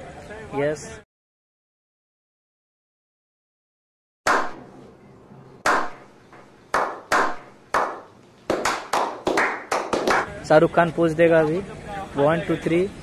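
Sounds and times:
people clapping: 0:06.7 - 0:10.3.

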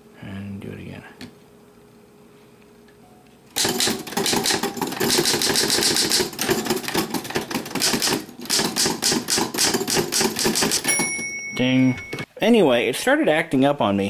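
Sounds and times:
manual typewriter typing: 0:03.6 - 0:11.2.

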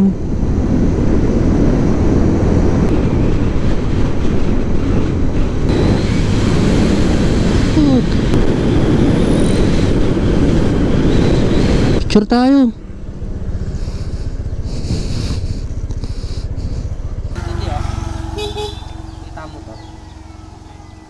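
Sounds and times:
wind on microphone: 0:00.0 - 0:12.4, 0:13.0 - 0:17.4
motorcycle engine rumble: 0:00.0 - 0:21.0.

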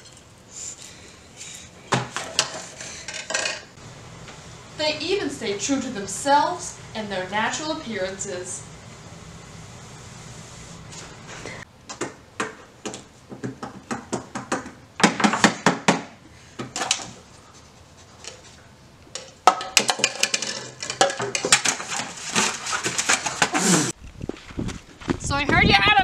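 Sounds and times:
tableware clattering: 0:02.2 - 0:03.7.

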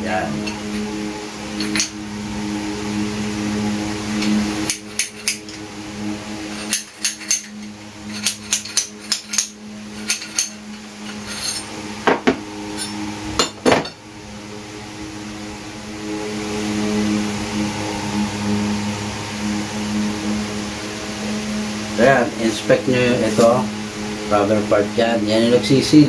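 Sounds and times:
steady low hum: 0:00.0 - 0:26.0
hammer tapping metal: 0:06.6 - 0:14.0.

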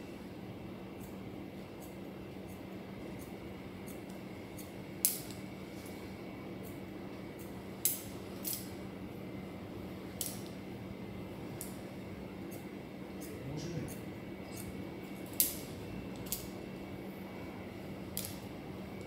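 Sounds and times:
faint steady hum: 0:00.0 - 0:19.0
scissors snipping hair: 0:01.0 - 0:06.0, 0:06.6 - 0:08.8, 0:10.2 - 0:10.6, 0:11.5 - 0:16.6, 0:18.1 - 0:18.5.

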